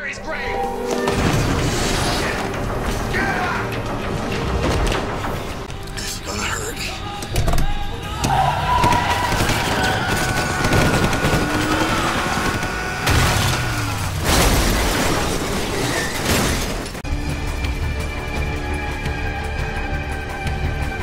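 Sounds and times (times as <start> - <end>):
dramatic music: 0.0 - 14.7, 16.7 - 21.0
crashes and booms: 8.8 - 17.0.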